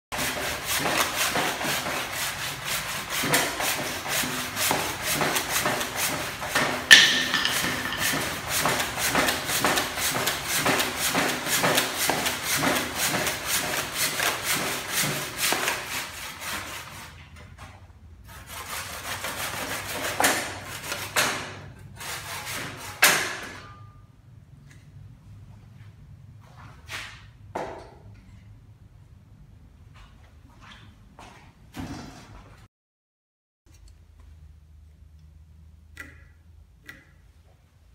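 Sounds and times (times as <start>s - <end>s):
hand tool strokes on wood: 0.2s - 17.2s
wood knocks: 6.9s - 8.4s.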